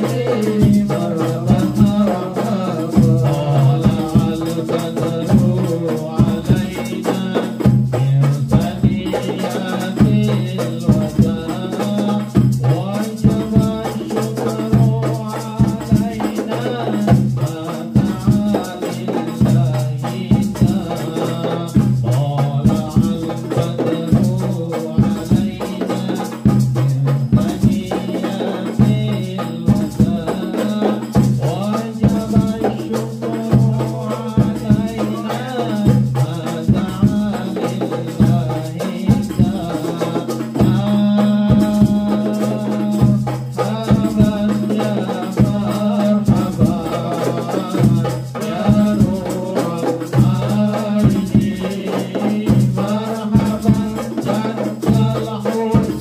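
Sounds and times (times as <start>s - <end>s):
frame drums beating: 0.0s - 56.0s
jingling tambourines: 0.0s - 56.0s
man singing into a microphone: 0.0s - 56.0s.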